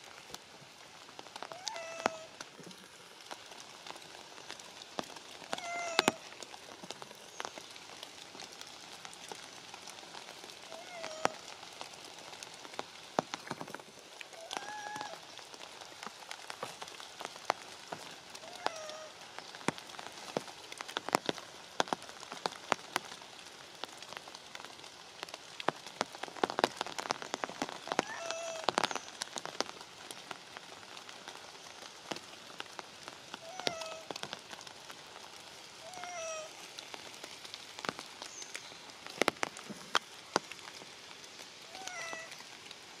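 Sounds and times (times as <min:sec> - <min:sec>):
steady rain: 0:00.0 - 0:43.0
water drips hitting leaves: 0:00.0 - 0:43.0
young monkey crying: 0:01.5 - 0:02.3, 0:05.5 - 0:06.2, 0:14.4 - 0:15.2, 0:18.4 - 0:19.1, 0:28.0 - 0:28.7, 0:33.4 - 0:34.1, 0:35.8 - 0:36.5, 0:41.7 - 0:42.3.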